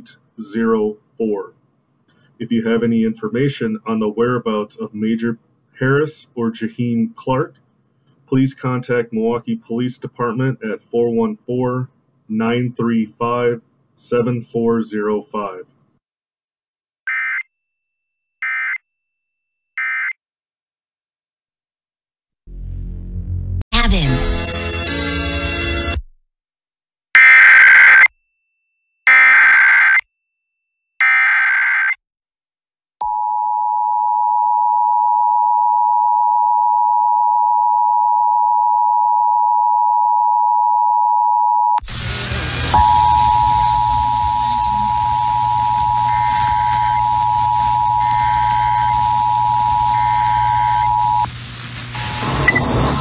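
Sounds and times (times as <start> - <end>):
low hum: 22.5 - 24.3, 41.8 - 53.0
steady two-tone alert signal: 42.7 - 51.3.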